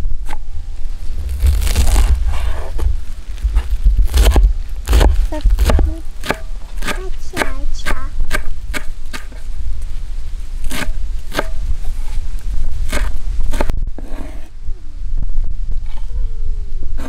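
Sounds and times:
knife chopping on wooden board: 4.1 - 9.3.

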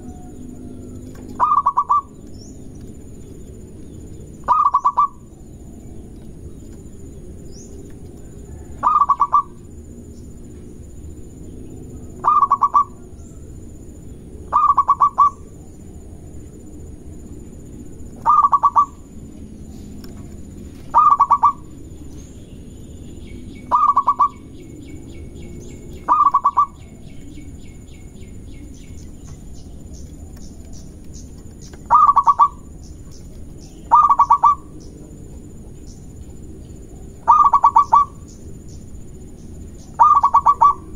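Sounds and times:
dove cooing: 0.0 - 2.3, 4.4 - 5.3, 8.2 - 9.7, 11.9 - 13.2, 14.5 - 15.6, 18.1 - 19.1, 20.8 - 21.8, 23.6 - 27.2, 31.8 - 32.8, 33.8 - 34.8, 36.8 - 38.2, 39.9 - 40.9.

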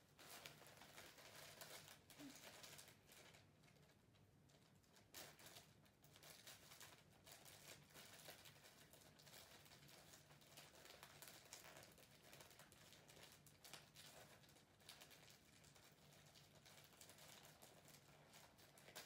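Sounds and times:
wrapping paper crinkling: 0.0 - 19.0.

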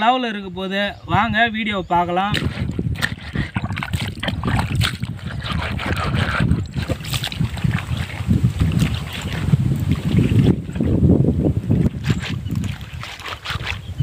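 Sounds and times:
wind rumbling on microphone: 0.4 - 14.0
fish scraped on wet rock: 2.2 - 11.0, 11.7 - 14.0.

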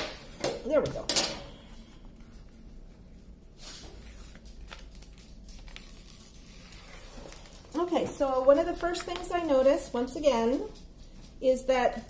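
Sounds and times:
paper crinkle: 1.8 - 9.8
canvas and paper rustling: 1.8 - 10.0.

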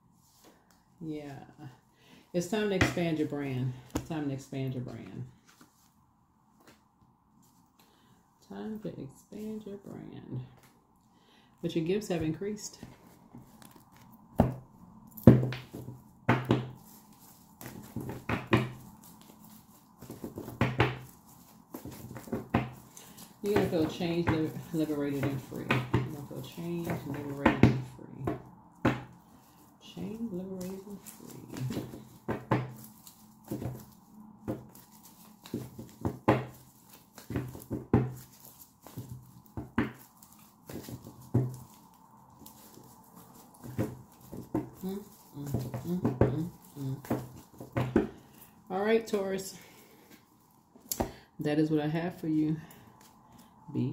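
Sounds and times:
cards being shuffled: 12.8 - 14.5, 15.2 - 27.4, 30.1 - 48.4.

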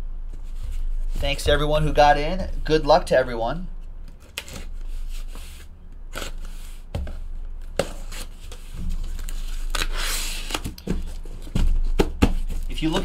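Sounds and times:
cardboard tearing: 9.0 - 10.7
cardboard knocks and scrapes: 10.8 - 13.0.

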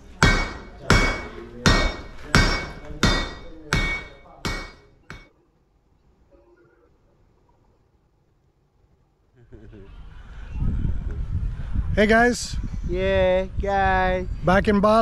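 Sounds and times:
hammer striking metal on anvil: 0.2 - 5.3.

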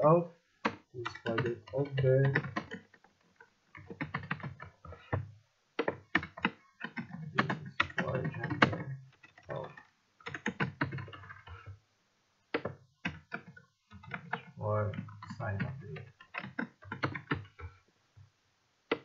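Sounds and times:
typing on computer keyboard: 0.6 - 3.0, 3.8 - 5.2, 5.8 - 11.8, 12.6 - 17.7.

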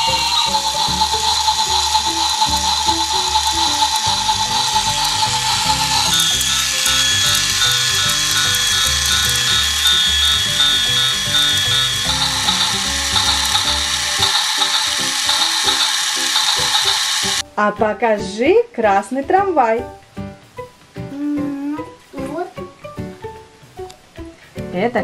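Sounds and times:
steady beeping: 0.0 - 17.4
tinny electronic tune: 0.0 - 17.4
toy train gears rattling: 0.0 - 17.4.

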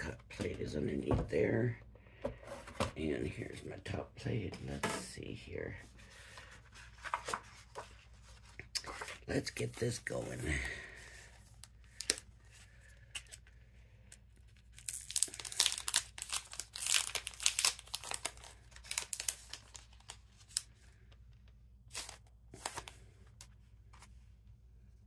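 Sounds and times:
paper crinkling and rustling: 6.1 - 10.5, 14.4 - 20.8, 21.9 - 24.2.

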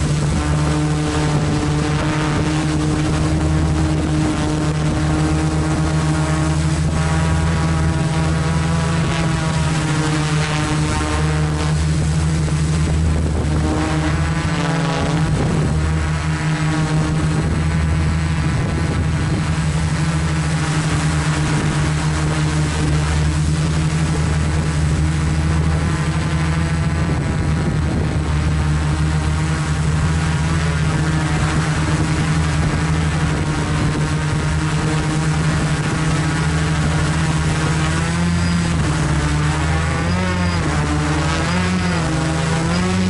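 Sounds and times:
drone motors humming: 0.0 - 43.0.

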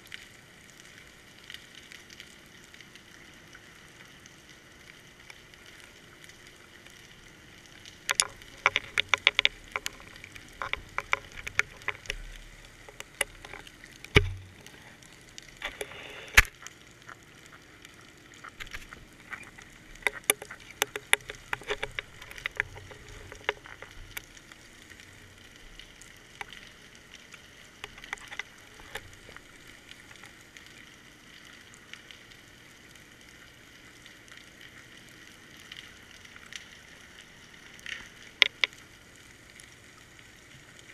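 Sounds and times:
underwater clicks and ticks: 0.0 - 40.9
faint hiss: 11.6 - 17.8
heavy underwater thump: 14.2 - 14.6.

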